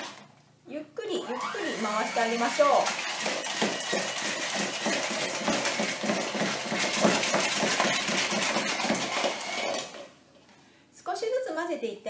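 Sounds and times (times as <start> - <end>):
electric mixer beaters rattling in bowl: 1.1 - 10.1.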